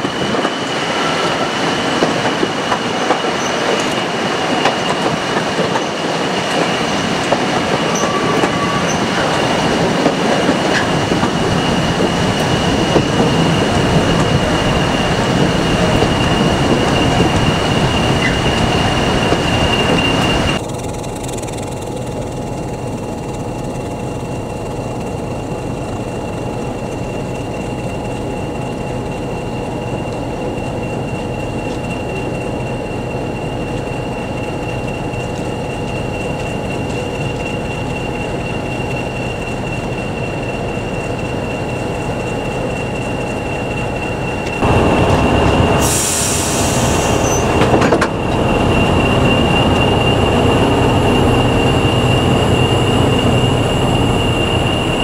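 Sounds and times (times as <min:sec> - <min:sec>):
train running noise: 0:00.0 - 0:55.0
locomotive high whistle: 0:07.7 - 0:09.8, 0:42.6 - 0:55.0
diesel engine hum: 0:44.4 - 0:55.0.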